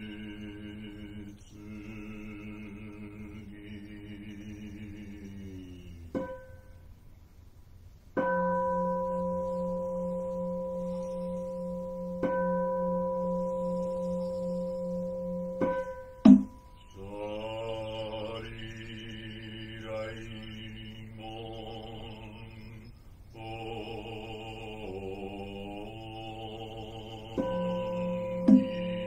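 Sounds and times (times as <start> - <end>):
man chanting: 0.0 - 6.4, 16.7 - 29.0
bowl bell ringing: 8.2 - 17.2, 27.4 - 29.0
sharp loud knock: 15.6 - 16.7.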